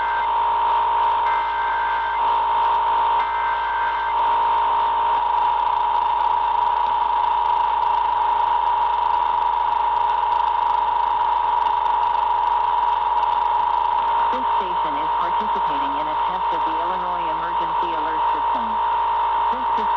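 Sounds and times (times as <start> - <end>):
two-tone attention signal: 0.0 - 6.5, 14.3 - 19.9
warbling digital header bursts: 14.3 - 19.9.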